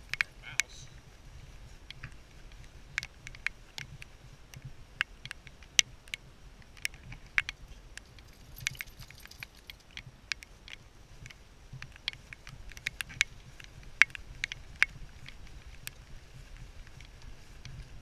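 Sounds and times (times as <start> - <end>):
harness hardware clinking: 6.8 - 10.8.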